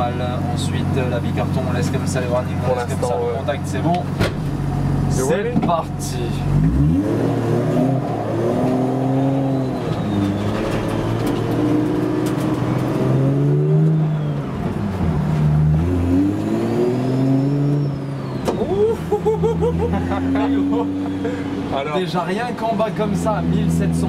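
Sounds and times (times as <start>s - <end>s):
turbocharged car engine from inside: 6.3s - 21.2s
faint high turbo whistle: 9.4s - 10.7s, 13.8s - 14.7s.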